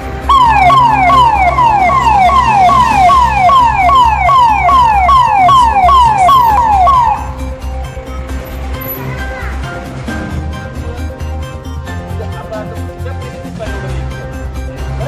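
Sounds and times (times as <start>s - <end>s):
electronic siren falling wail: 0.3s - 7.4s.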